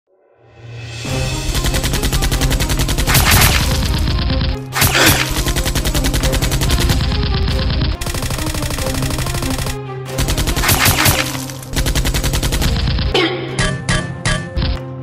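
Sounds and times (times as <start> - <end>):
background music: 0.1 - 15.0
automatic gunfire: 1.5 - 13.2.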